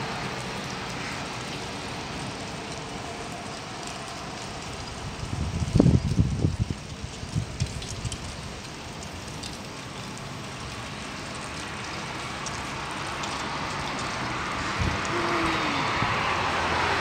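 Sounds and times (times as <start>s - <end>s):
wind gusts buffeting microphone: 4.9s - 8.3s, 14.4s - 17.0s.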